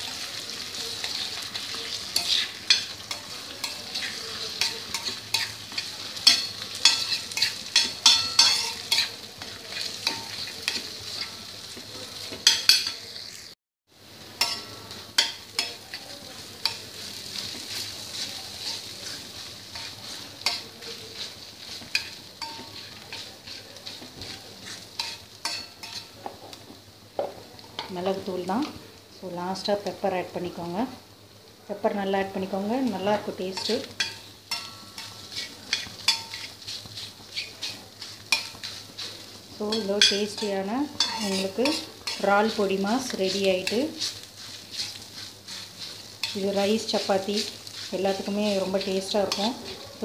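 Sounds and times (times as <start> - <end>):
egg sizzling on a pan: 0.0 - 50.0
spatula scraping metal pan: 1.0 - 11.4, 14.4 - 26.2, 33.5 - 49.9.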